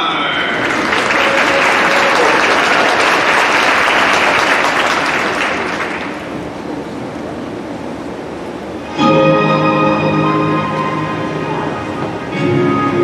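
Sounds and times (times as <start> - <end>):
audience applause: 0.2 - 6.5.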